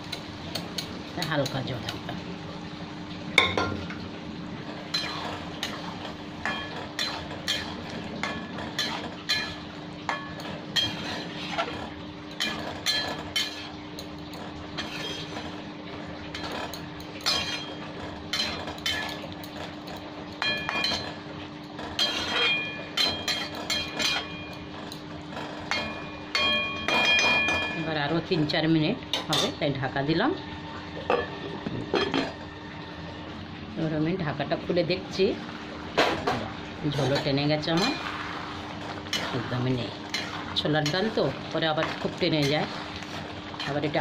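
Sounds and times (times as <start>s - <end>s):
metal spatula scraping pan: 4.6s - 13.8s, 14.4s - 15.7s, 16.3s - 19.8s, 21.8s - 27.8s, 36.9s - 44.0s.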